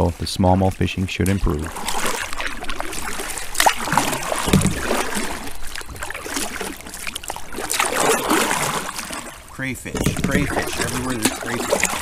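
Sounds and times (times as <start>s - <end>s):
paddle splashing through water: 0.0s - 12.0s
water trickling off paddle: 0.0s - 12.0s
heavy thump: 4.4s - 4.9s.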